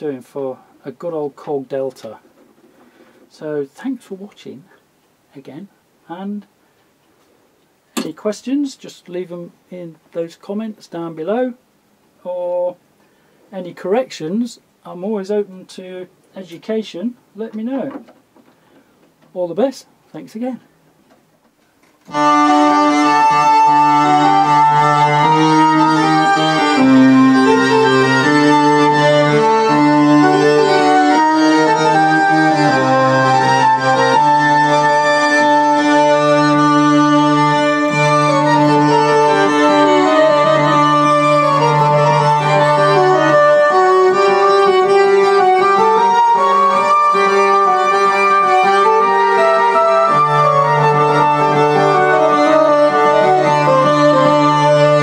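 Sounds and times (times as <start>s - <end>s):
string synthesizer chords: 22.1s - 55.0s.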